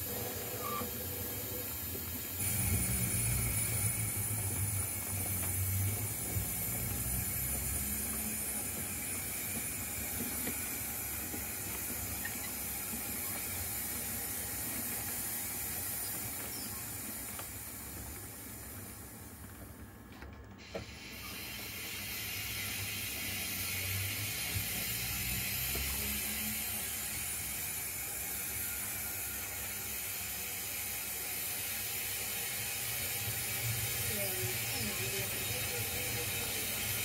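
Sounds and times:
steady hiss: 0.0s - 19.3s, 20.6s - 37.0s
model train wheels rumbling: 0.0s - 37.0s.

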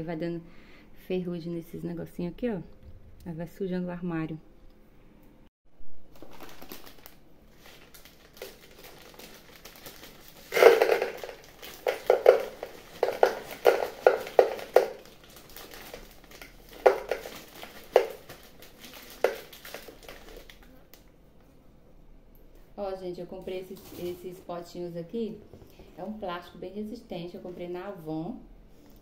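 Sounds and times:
plastic packet crinkling: 6.0s - 21.0s
spaghetti clattering against plastic: 6.2s - 20.7s.

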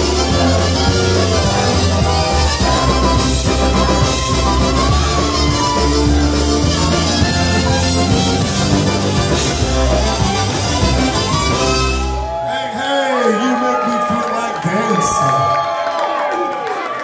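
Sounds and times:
polka band playing: 0.0s - 12.4s
trumpet lead: 0.0s - 13.4s.

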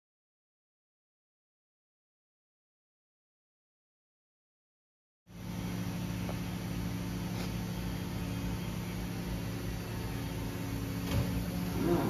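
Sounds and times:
machine humming at idle: 5.3s - 12.0s.

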